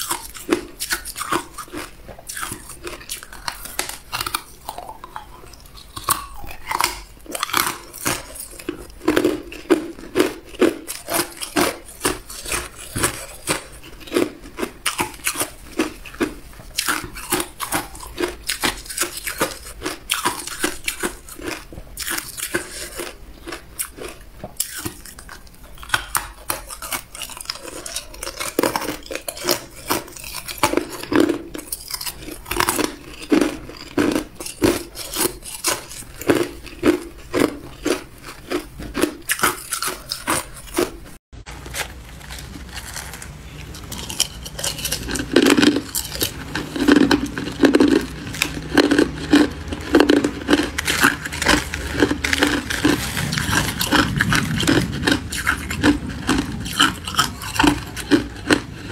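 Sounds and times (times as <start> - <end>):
ice crunching between teeth: 0.0 - 58.9.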